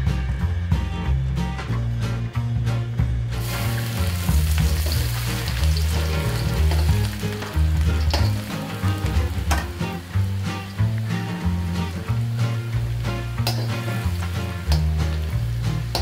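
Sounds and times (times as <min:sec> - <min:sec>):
garlic sizzling in oil: 0:03.4 - 0:16.0
spatula clicking on wok: 0:08.0 - 0:08.6, 0:13.4 - 0:15.2.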